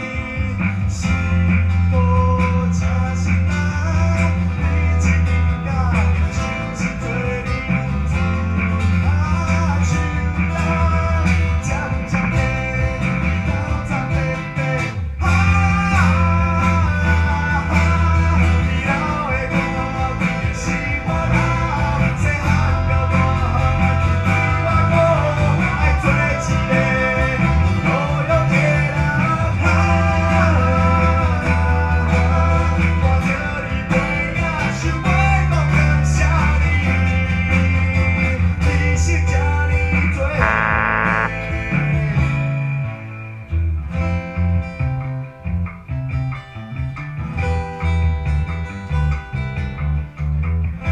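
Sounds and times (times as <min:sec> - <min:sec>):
acoustic guitar: 0:00.0 - 0:50.9
electric bass: 0:00.0 - 0:50.9
person singing: 0:40.4 - 0:41.6.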